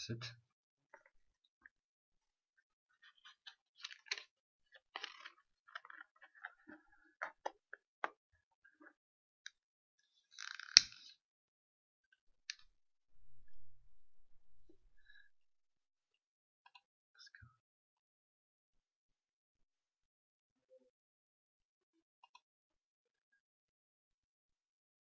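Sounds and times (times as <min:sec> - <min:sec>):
faint clicks and crackles: 0:03.0 - 0:09.6, 0:10.2 - 0:11.2.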